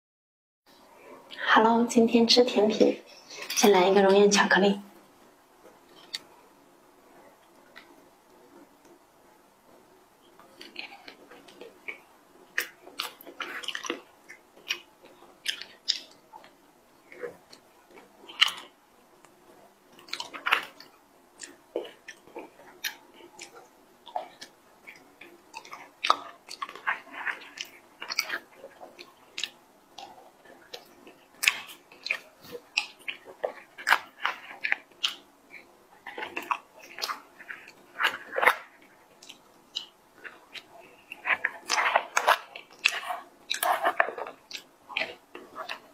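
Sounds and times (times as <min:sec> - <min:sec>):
chewing clicks: 0:12.6 - 0:19.4, 0:20.0 - 0:45.9.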